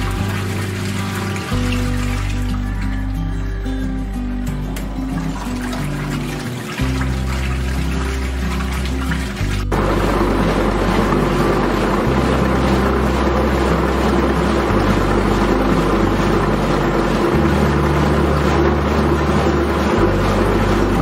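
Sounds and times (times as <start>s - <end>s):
washing machine spinning: 0.0s - 21.0s.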